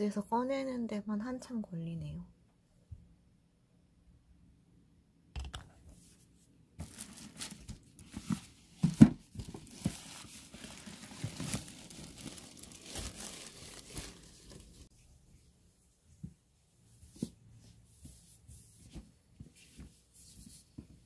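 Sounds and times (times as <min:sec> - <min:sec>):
packaging crinkling and tearing: 0:06.8 - 0:08.4, 0:09.3 - 0:14.9.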